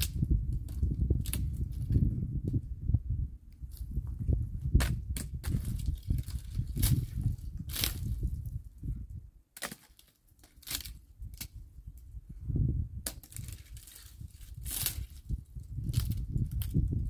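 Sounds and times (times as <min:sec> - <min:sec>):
twigs cracking and snapping: 0:00.0 - 0:02.6, 0:04.8 - 0:08.5, 0:09.6 - 0:12.1, 0:13.0 - 0:17.0
low rumble: 0:00.0 - 0:09.3.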